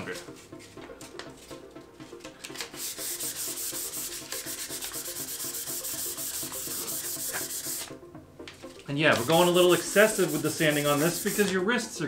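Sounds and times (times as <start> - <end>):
sandpaper rubbing on wood: 2.8 - 7.9, 9.2 - 11.6.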